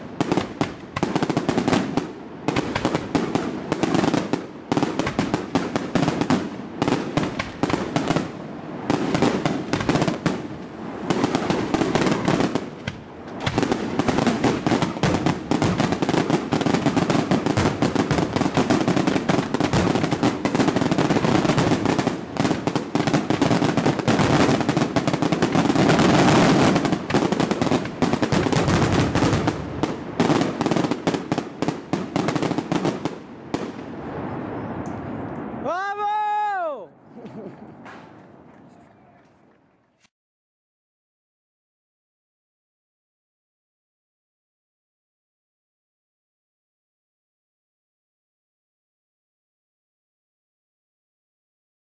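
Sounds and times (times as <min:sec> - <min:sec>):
fireworks bangs and crackles: 0:00.0 - 0:36.1.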